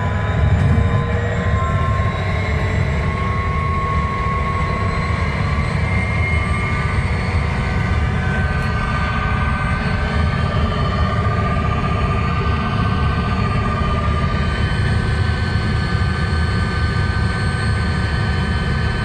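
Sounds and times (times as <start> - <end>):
vehicle rumble: 0.0 - 3.4
faint rising whines: 0.0 - 19.0.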